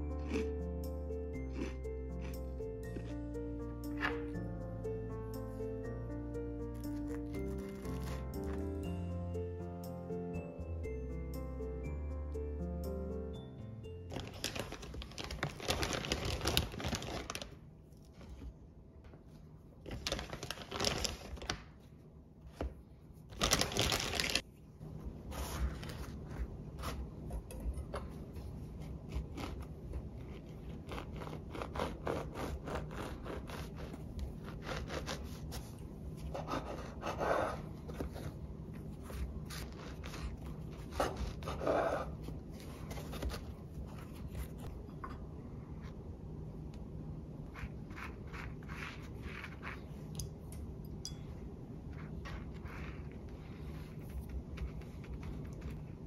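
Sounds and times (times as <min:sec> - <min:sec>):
rustling and crinkling: 0:14.1 - 0:27.1, 0:42.1 - 0:44.8.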